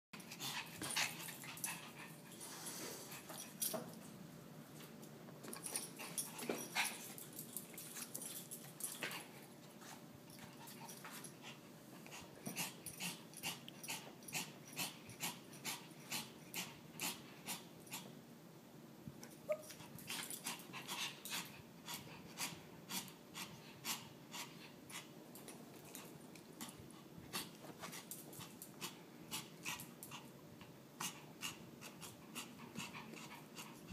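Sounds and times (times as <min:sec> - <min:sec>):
small dog whining and wheezing: 0:19.3 - 0:19.9.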